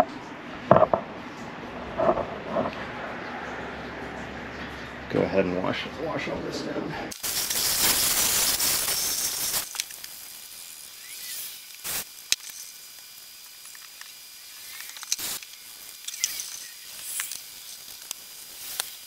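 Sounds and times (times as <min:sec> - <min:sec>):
brief clicks and knocks: 0:00.7 - 0:01.0
hose spraying hiss: 0:07.1 - 0:19.0.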